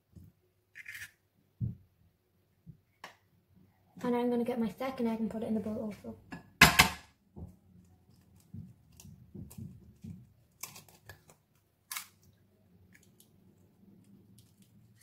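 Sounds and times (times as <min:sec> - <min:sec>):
eggshell cracking: 0:10.5 - 0:15.0.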